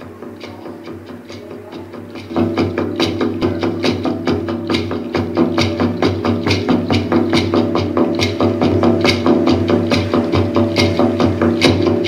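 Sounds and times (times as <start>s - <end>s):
steady percussion beat: 0.0s - 12.0s.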